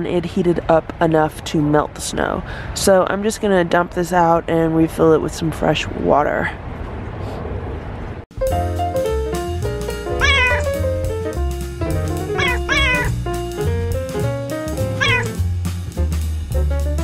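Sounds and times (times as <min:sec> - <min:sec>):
background music: 0:08.3 - 0:17.0
cat meowing: 0:10.2 - 0:10.8, 0:12.3 - 0:13.1, 0:15.0 - 0:15.4.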